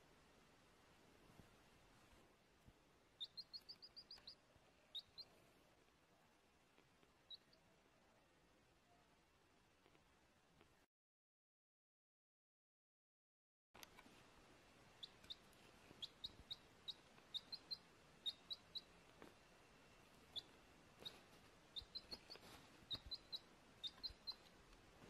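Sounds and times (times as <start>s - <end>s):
baby chick peeping: 3.1s - 8.0s, 13.8s - 25.0s.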